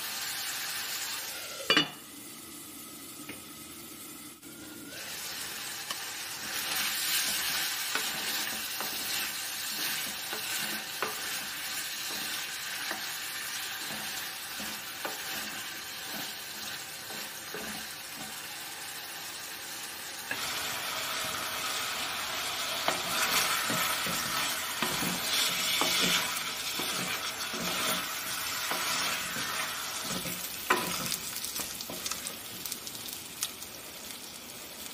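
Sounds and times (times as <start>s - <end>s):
chicken sizzling in a pan: 0.0s - 34.9s
spatula scraping a pan: 4.9s - 19.0s, 20.3s - 32.2s.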